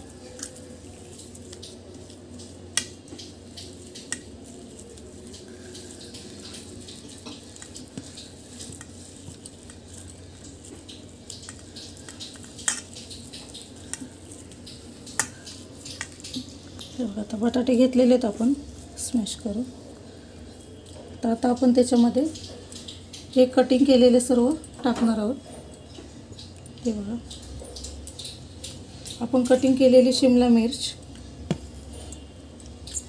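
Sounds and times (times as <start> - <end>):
potatoes being mashed by hand: 0.0 - 17.0, 31.1 - 33.0.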